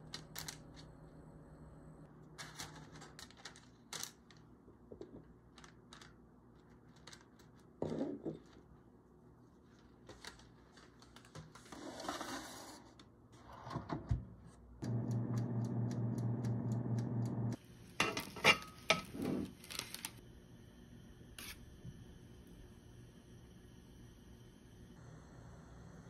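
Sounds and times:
electric oven humming: 0.0 - 2.2, 13.4 - 26.0
oven timer ticking: 14.8 - 17.6
baking tray and rack clattering: 18.0 - 19.9.

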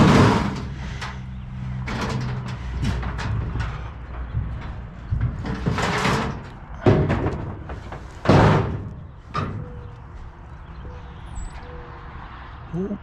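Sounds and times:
truck door slamming: 5.2 - 9.9.

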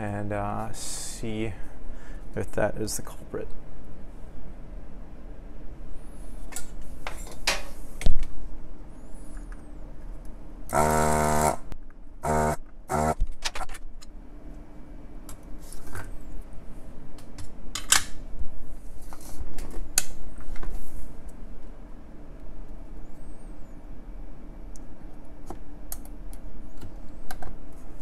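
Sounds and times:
desoldering pump buzzing: 10.7 - 13.3.

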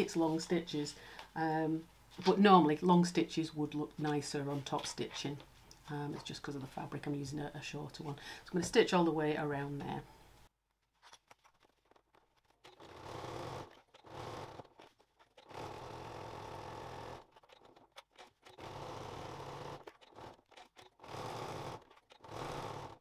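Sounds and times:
sewing machine stitching: 11.7 - 23.0.

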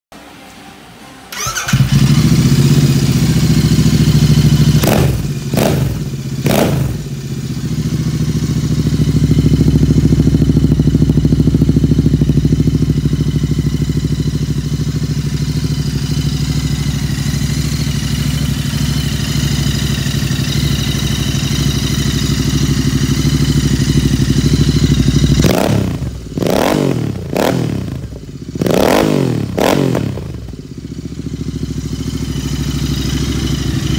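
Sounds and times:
motorcycle engine idling and revving: 1.3 - 33.9.

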